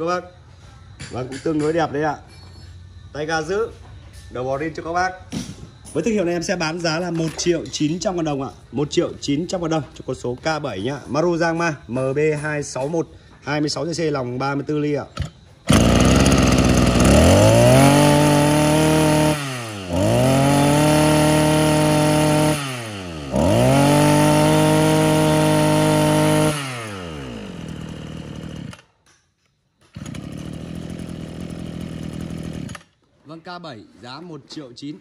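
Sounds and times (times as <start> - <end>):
brush cutter engine revving: 15.2 - 28.9, 29.8 - 33.0.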